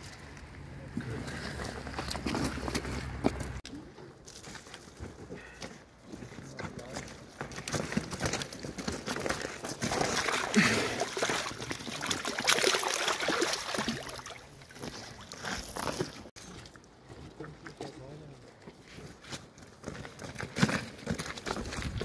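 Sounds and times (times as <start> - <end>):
fish splashing and thrashing: 8.2 - 17.0
water sloshing and dripping: 9.6 - 17.0.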